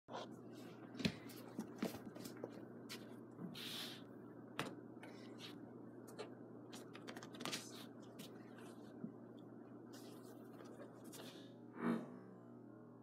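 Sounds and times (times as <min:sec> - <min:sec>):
steady low hum: 0:00.1 - 0:13.0.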